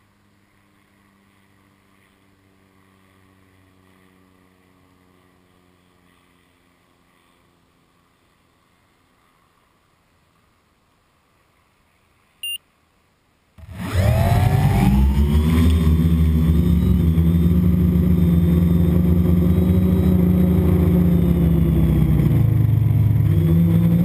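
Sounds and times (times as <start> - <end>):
faint distant engine hum: 0.0 - 24.0.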